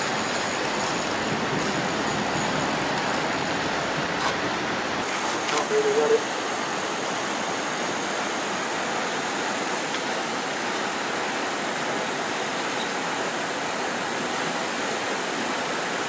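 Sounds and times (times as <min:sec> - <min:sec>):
pond aerator churning water: 0:00.0 - 0:06.9.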